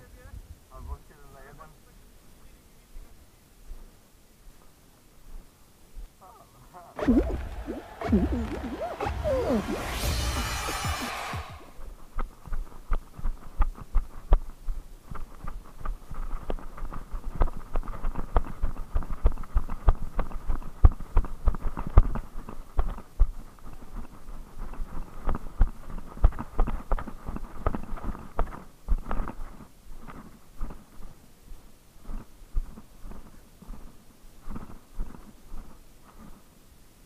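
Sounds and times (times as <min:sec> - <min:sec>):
quick irregular footsteps: 0:10.2 - 0:36.5
brush rustling: 0:11.7 - 0:36.7.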